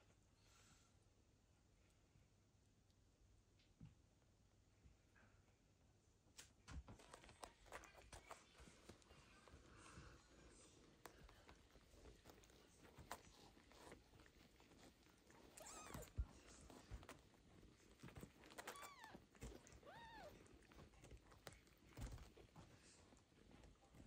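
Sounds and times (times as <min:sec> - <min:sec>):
soft rustling: 0:06.7 - 0:24.0
kitten mewing: 0:12.4 - 0:22.2.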